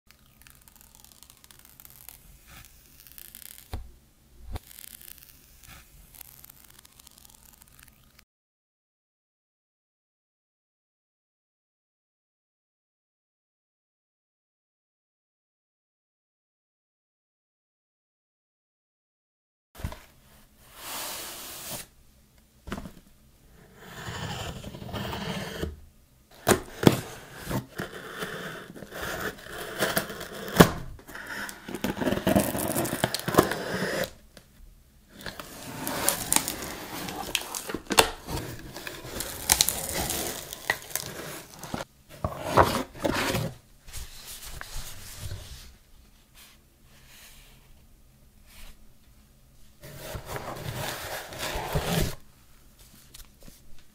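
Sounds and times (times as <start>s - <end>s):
plastic and paper crinkling: 0.2s - 3.7s, 31.0s - 34.1s, 35.2s - 41.8s
cardboard tearing and scraping: 0.4s - 3.8s, 4.6s - 7.8s, 23.6s - 34.2s, 35.1s - 43.6s, 49.8s - 52.2s.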